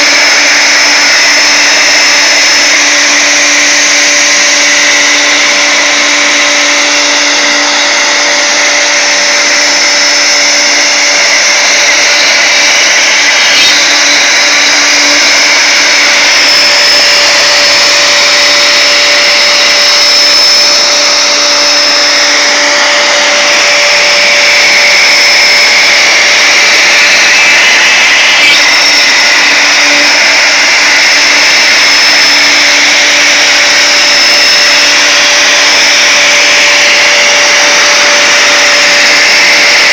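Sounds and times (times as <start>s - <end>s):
router motor whine: 0.0s - 39.9s
bit cutting wood hiss: 9.0s - 39.9s.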